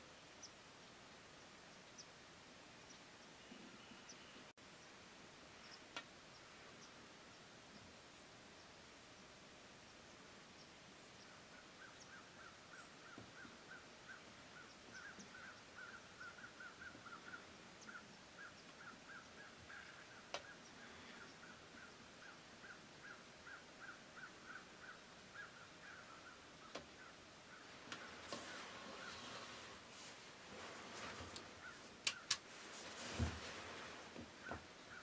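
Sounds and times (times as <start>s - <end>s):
distant animal calling: 11.3s - 30.0s, 30.6s - 32.4s.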